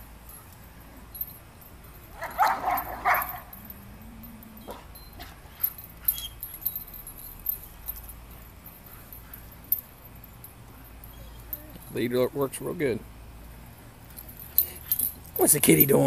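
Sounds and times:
dogs vocalizing: 0:02.2 - 0:06.6.

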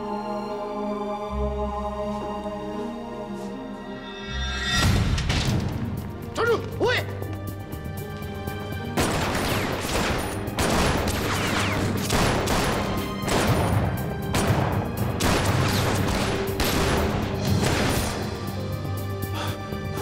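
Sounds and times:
dramatic score music: 0:00.0 - 0:20.0
sustained gunfire: 0:09.0 - 0:18.2.

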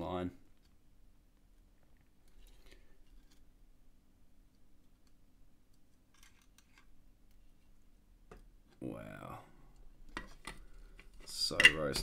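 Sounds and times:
small parts clicking and scraping: 0:05.8 - 0:06.9.

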